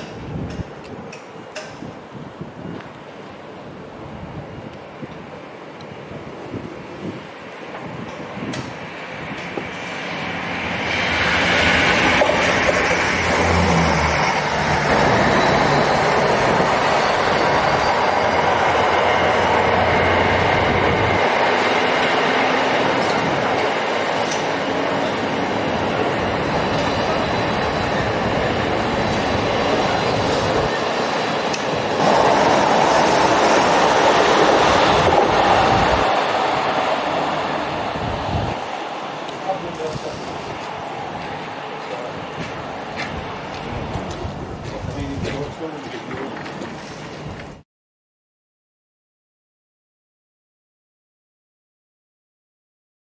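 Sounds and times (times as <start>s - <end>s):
train wheels clattering on track: 0.0s - 2.0s, 7.6s - 37.6s, 39.2s - 47.6s
diesel locomotive engine: 0.0s - 47.6s.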